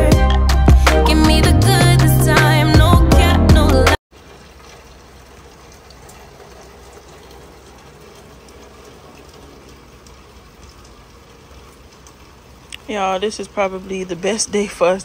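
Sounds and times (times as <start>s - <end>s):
steady rain falling: 4.1s - 15.0s
faint ticks of drops: 4.2s - 12.9s.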